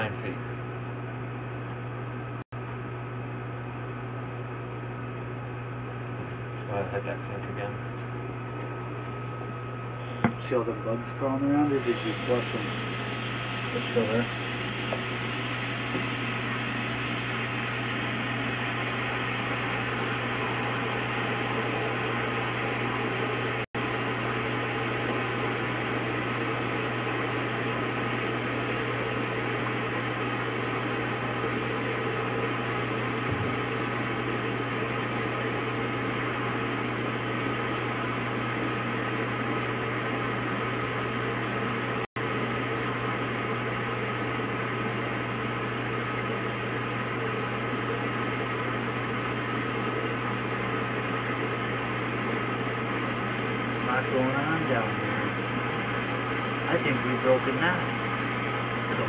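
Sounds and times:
constant low hum: 0.0 - 59.0
steady hiss: 11.3 - 21.2.

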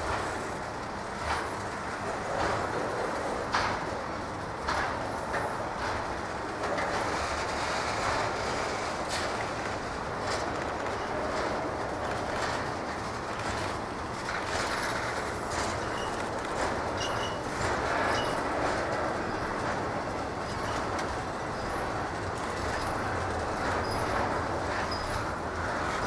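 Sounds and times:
freight train rumbling on rails: 0.0 - 26.0
train wheel squeals: 14.6 - 26.0.

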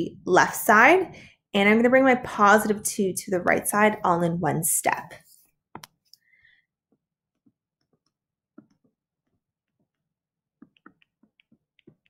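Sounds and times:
stylus tapping tablet screen: 5.8 - 6.0, 6.9 - 12.0.

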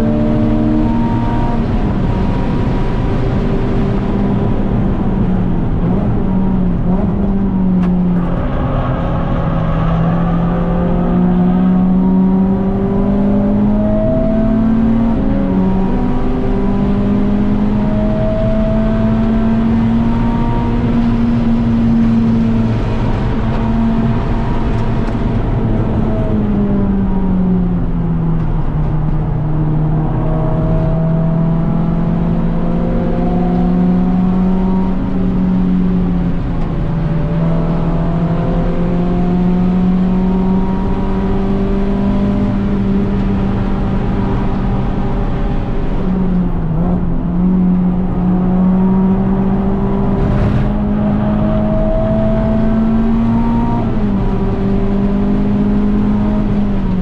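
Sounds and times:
car engine at high revs: 0.0 - 57.0.

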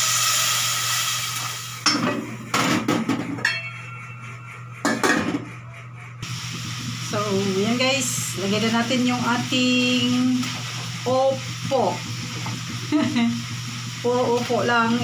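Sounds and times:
water hissing in hot pot: 0.0 - 1.8, 6.2 - 15.0
metal pot lid clanking: 1.8 - 4.0.

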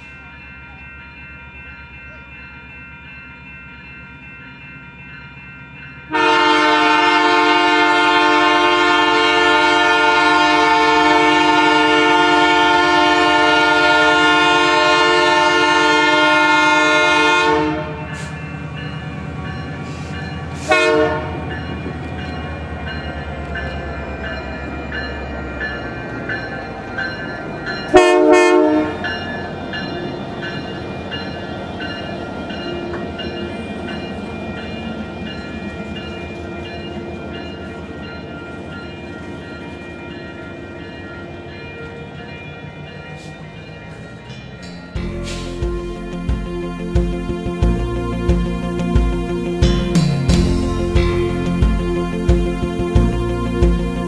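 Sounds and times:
train rumble: 0.0 - 54.0
locomotive air horn: 6.1 - 18.3, 20.6 - 21.4, 27.9 - 29.0.

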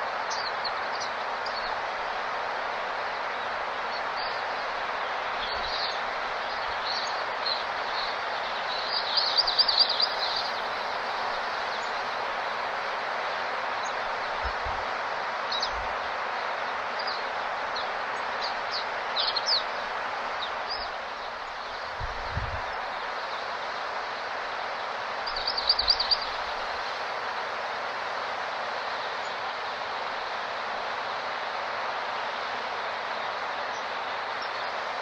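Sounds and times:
small birds chirping: 5.4 - 12.7, 15.5 - 24.3, 25.1 - 27.1.

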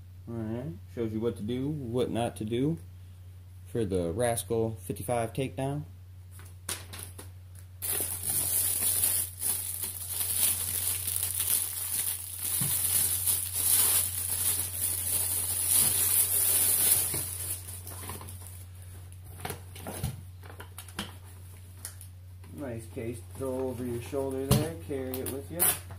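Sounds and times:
handling noises: 7.8 - 18.6
plastic packaging crinkling: 7.8 - 18.7.

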